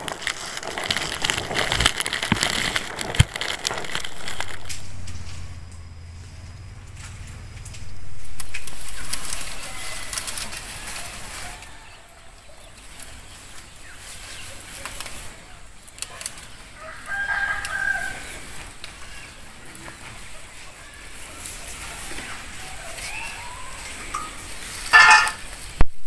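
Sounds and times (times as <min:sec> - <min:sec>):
vines rustling and stems snapping: 0:00.0 - 0:05.8, 0:06.9 - 0:26.0
rooster crowing: 0:08.8 - 0:12.6, 0:16.7 - 0:18.6.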